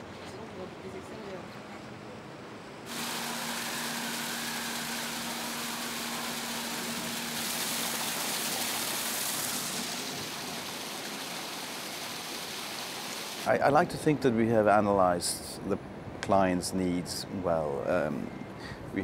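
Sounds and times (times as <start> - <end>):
water pouring and splashing: 2.9 - 13.5.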